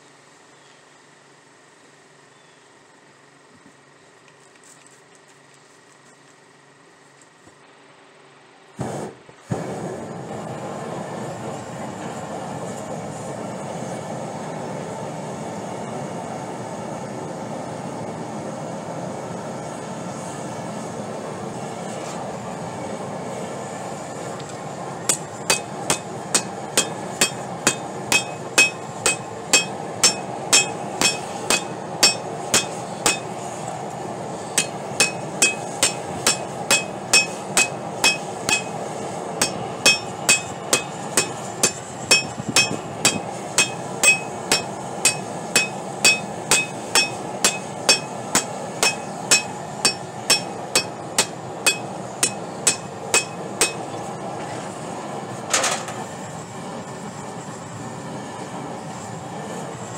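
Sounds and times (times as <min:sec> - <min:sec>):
gas forge burner hissing: 0:08.6 - 0:59.9
hammer striking on anvil: 0:25.1 - 0:33.4, 0:34.6 - 0:54.0.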